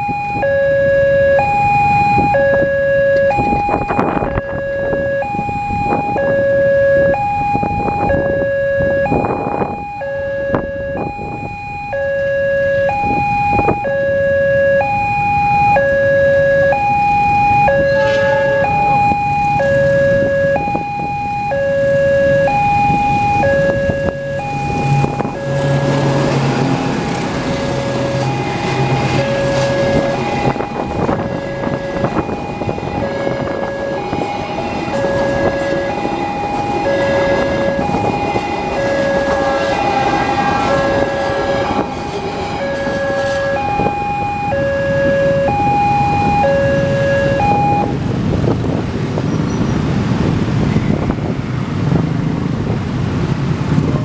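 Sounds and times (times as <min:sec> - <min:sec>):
level-crossing two-tone alarm: 0:00.0 - 0:48.0
train engine hum: 0:17.6 - 0:54.0
train wheels on rails: 0:24.7 - 0:44.2.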